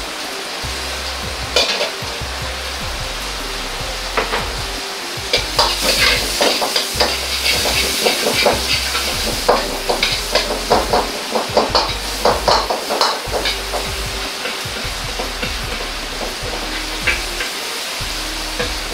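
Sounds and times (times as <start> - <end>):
garlic sizzling in oil: 3.9 - 18.9.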